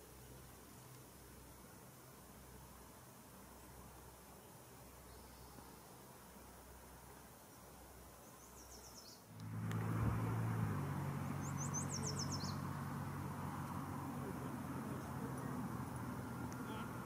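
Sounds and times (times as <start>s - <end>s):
small bird chirping: 8.2s - 9.3s, 11.1s - 17.0s.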